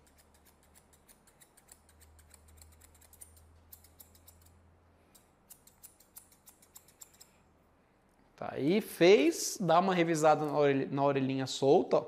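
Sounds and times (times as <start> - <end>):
scissors snipping fur: 0.0 - 7.4.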